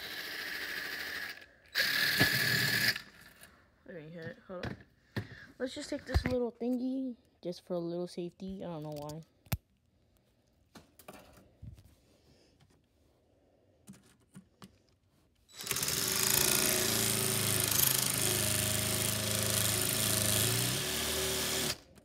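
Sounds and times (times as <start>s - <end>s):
power tool grinding whine: 15.5s - 21.9s.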